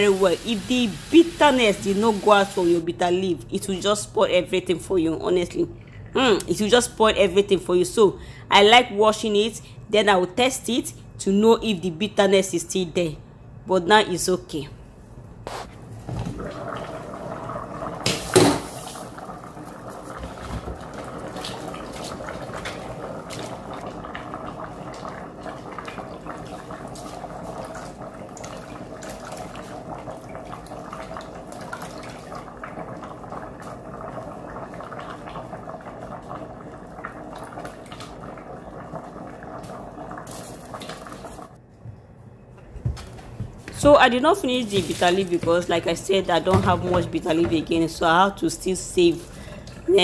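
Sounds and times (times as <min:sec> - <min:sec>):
pot boiling and bubbling: 0:00.0 - 0:04.1, 0:15.7 - 0:41.6
leaves splashing into pot: 0:44.6 - 0:45.4.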